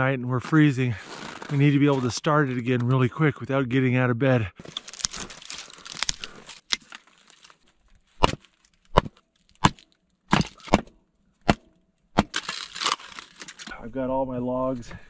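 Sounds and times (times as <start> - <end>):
rustling: 4.6 - 10.8, 12.3 - 13.8
wood cracking: 4.6 - 13.8.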